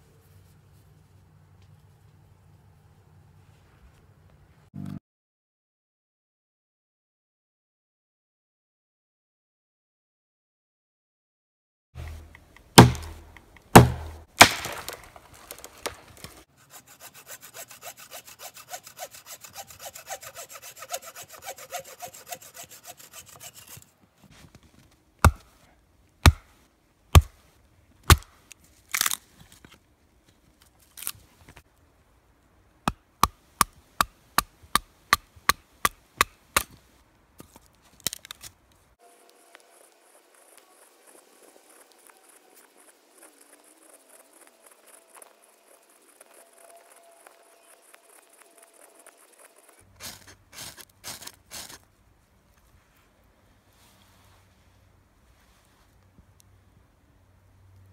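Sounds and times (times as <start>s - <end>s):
axe strikes on a log: 12.0s - 16.3s, 25.2s - 25.5s, 26.2s - 27.4s, 28.1s - 28.4s
heavy chopping strikes: 12.0s - 16.4s, 25.2s - 25.5s, 26.2s - 26.6s, 27.2s - 27.4s, 28.0s - 28.4s
hand saw sawing wood: 12.0s - 24.0s, 43.3s - 51.8s.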